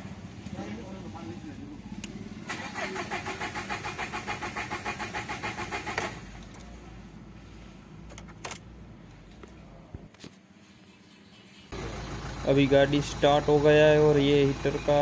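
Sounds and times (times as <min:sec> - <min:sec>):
starter motor cranking engine: 0:02.0 - 0:06.5.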